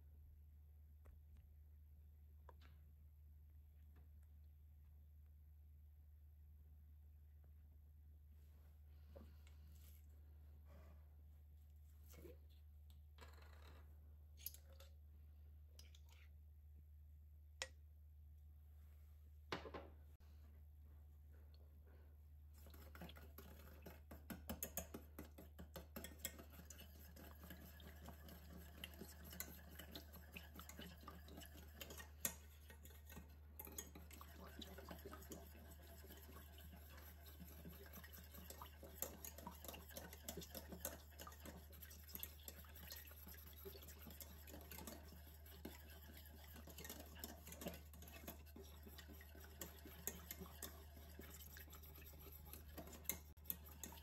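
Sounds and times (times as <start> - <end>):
whisk scraping metal pan: 22.5 - 54.0.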